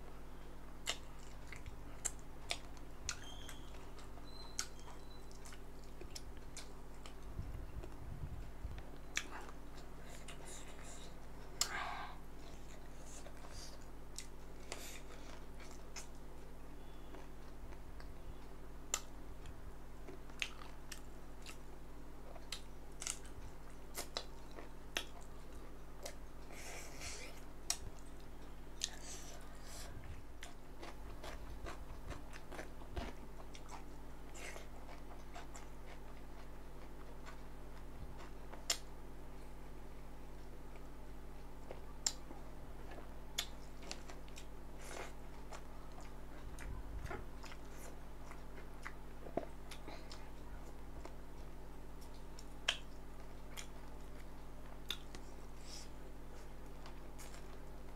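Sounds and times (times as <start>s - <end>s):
steady low hum: 0.0s - 57.9s
person chewing food: 0.8s - 38.9s, 40.4s - 57.9s
food crunching: 22.3s - 38.9s, 56.4s - 57.7s.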